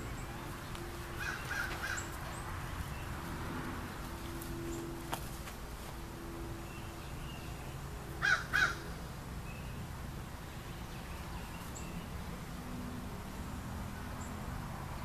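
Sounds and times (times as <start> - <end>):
crow cawing: 1.2 - 2.1, 8.2 - 8.8.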